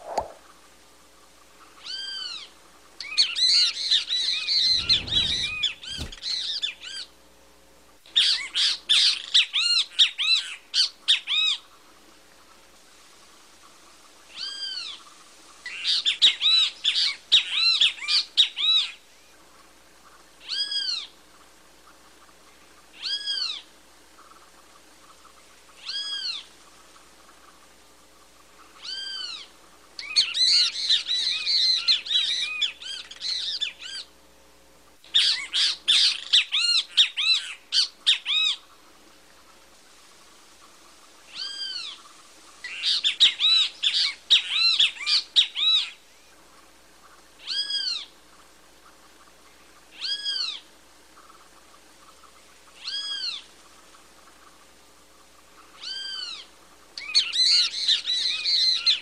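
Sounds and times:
bird calling harsh notes: 0:04.2 - 0:06.5.

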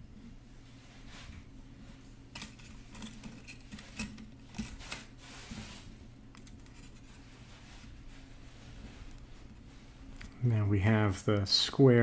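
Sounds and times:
steady low hum: 0:00.0 - 0:12.0
metal wire clicks and scrapes: 0:02.3 - 0:07.9.

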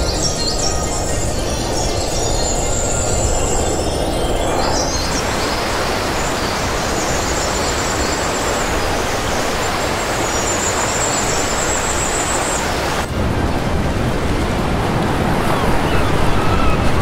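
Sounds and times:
waterfall rushing: 0:04.6 - 0:17.0.

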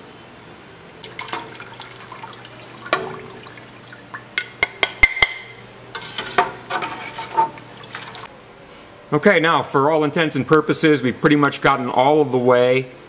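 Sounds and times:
whey dripping and splashing: 0:01.0 - 0:04.6, 0:07.1 - 0:08.3.

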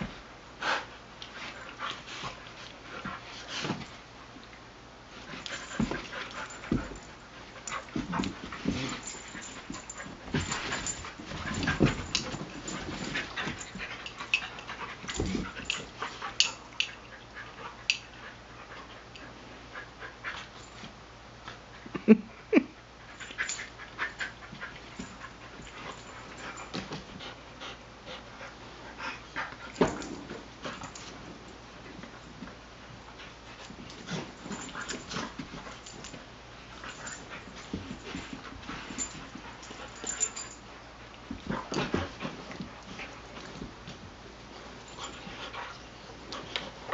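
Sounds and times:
dogs scuffling: 0:05.1 - 0:17.0, 0:29.5 - 0:46.9
dogs panting: 0:05.4 - 0:20.8, 0:36.7 - 0:43.6.

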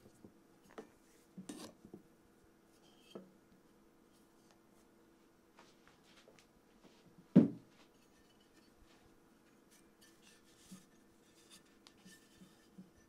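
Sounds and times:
items rubbing while handled: 0:07.8 - 0:13.0.

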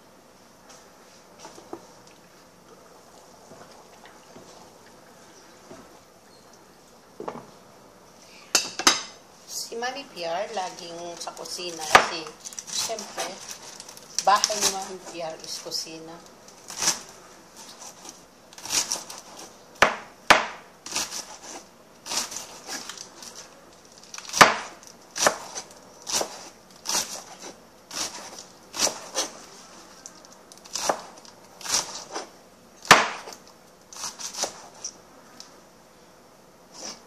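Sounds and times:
knife chopping on cutting board: 0:24.4 - 0:29.3.

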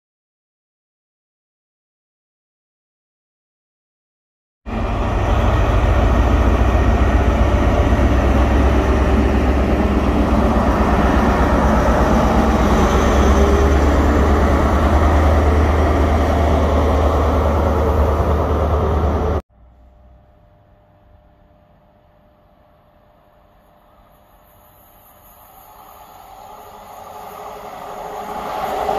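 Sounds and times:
diesel train passing: 0:04.7 - 0:19.4, 0:23.9 - 0:28.9.

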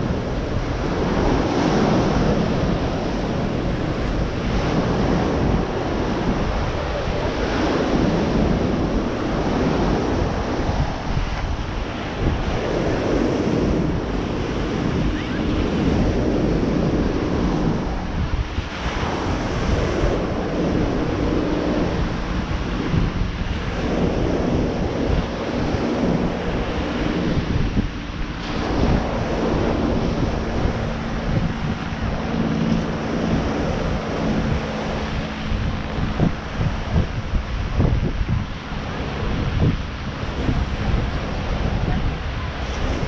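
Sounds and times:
surf breaking on beach: 0:00.0 - 0:43.0
wind buffeting microphone: 0:00.0 - 0:43.0.

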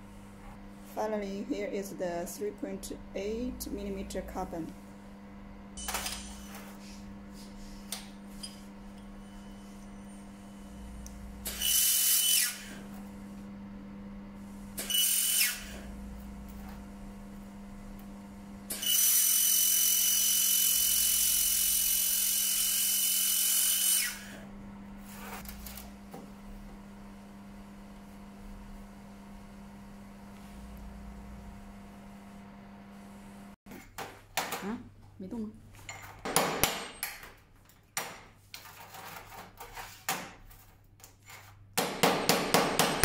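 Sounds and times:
constant low hum: 0:00.0 - 0:11.7, 0:15.7 - 0:18.8
laser welder hissing whine: 0:09.1 - 0:12.9, 0:14.4 - 0:16.1, 0:18.7 - 0:24.4.

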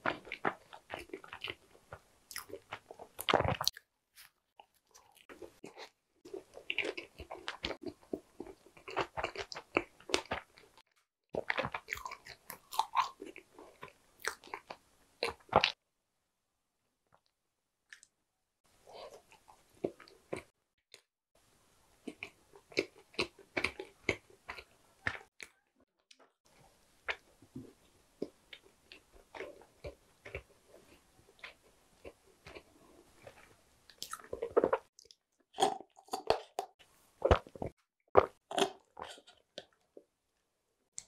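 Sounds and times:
crunchy chewing: 0:00.0 - 0:10.8, 0:11.4 - 0:15.8, 0:22.0 - 0:25.6.

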